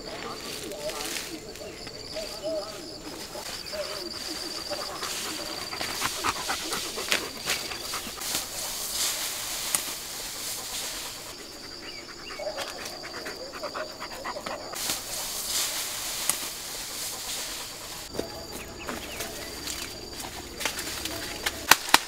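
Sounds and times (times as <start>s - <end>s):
dog panting: 0.0s - 21.4s.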